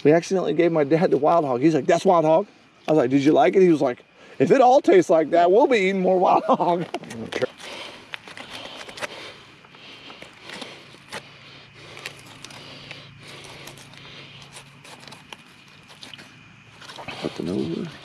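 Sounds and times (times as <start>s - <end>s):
faint low hum: 0.0s - 18.0s
knife scraping hide: 10.2s - 18.0s.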